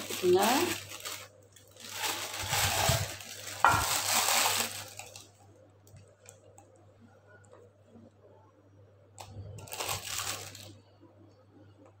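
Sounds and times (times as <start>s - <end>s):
plastic bag crinkling: 0.0s - 5.4s, 9.2s - 10.8s.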